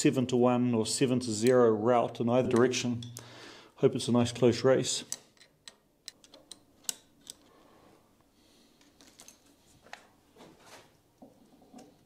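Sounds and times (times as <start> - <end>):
sharp metal clicks: 5.0 - 7.5.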